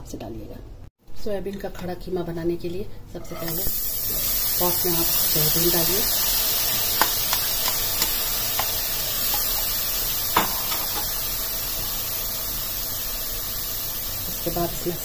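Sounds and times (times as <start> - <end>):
steady hiss: 3.4 - 15.0
granules clicking against a pot: 6.9 - 9.6.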